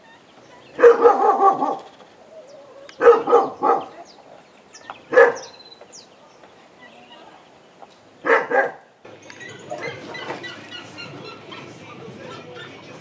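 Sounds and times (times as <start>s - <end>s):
dog barking: 0.8s - 1.9s, 3.0s - 4.1s, 5.1s - 5.6s, 8.2s - 8.8s.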